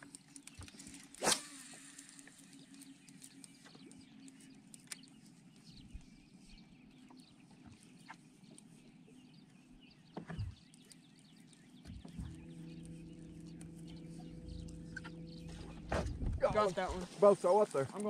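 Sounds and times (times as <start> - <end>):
birds chirping: 0.0 - 18.0
steady low hum: 0.0 - 18.0
low thump: 15.0 - 17.0.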